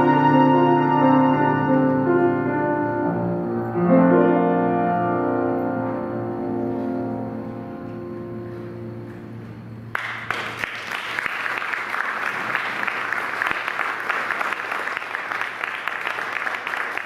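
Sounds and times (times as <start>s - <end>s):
quartet held chord: 0.0s - 9.9s
audience applauding: 9.9s - 17.0s.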